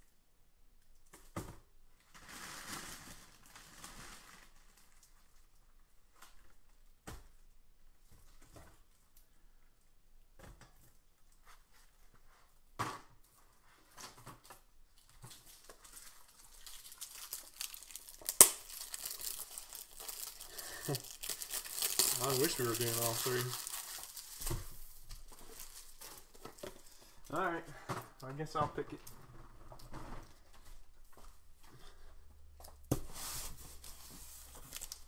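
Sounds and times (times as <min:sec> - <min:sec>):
packaging crinkling and rustling: 0:02.0 - 0:06.6, 0:13.8 - 0:26.9, 0:33.0 - 0:35.0.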